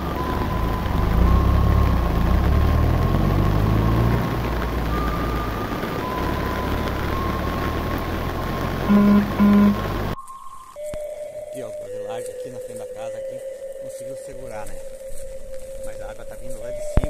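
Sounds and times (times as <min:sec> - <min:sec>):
vehicle engine revving: 0:00.0 - 0:10.2.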